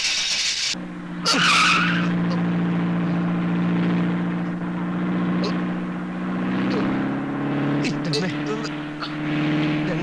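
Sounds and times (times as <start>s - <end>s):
car engine droning: 0.7s - 10.0s
tyre squeal: 1.2s - 2.4s.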